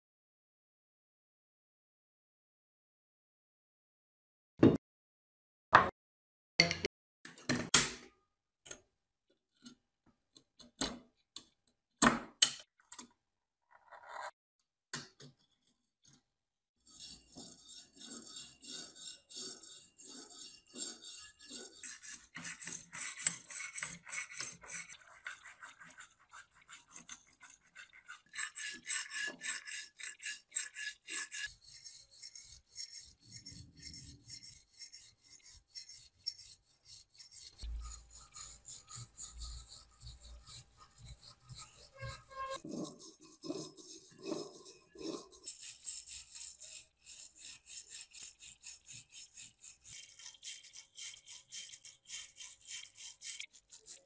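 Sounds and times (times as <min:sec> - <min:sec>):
wire brush scraping metal: 0:16.9 - 0:54.0.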